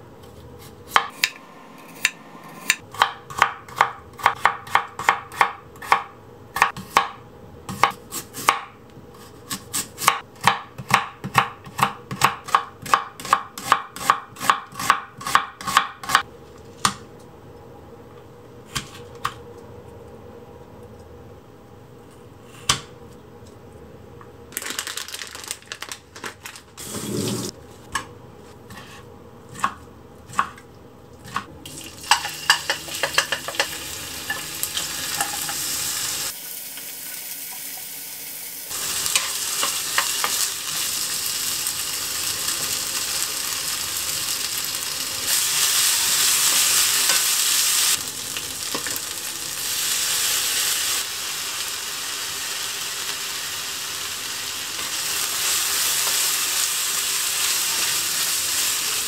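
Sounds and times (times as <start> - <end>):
food sizzling in frying pan: 31.7 - 59.0.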